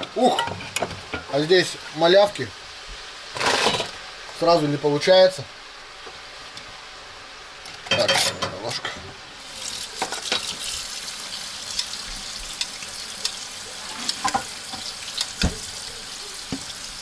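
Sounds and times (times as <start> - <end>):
tap water running: 9.4 - 17.0.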